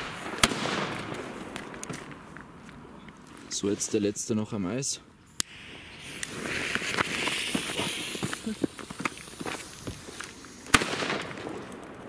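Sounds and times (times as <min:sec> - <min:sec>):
footsteps crunching on gravel: 0:01.1 - 0:04.0, 0:06.4 - 0:10.6
fuse hissing: 0:05.4 - 0:10.8.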